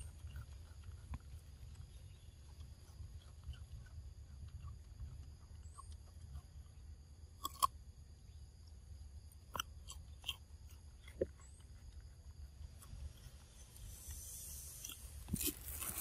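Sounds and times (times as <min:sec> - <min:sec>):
monkey crunching vegetable: 0:00.0 - 0:07.8, 0:09.4 - 0:16.0.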